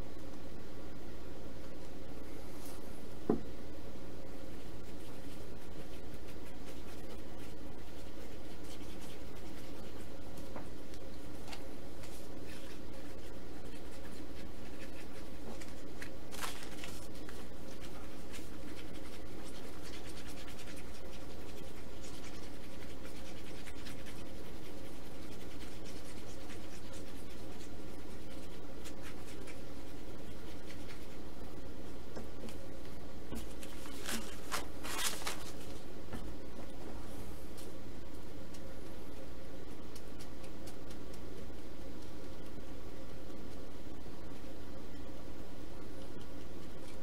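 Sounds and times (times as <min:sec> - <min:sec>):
steady electrical hum: 0:00.0 - 0:47.0
wooden stick scratching stirring epoxy: 0:04.4 - 0:31.3.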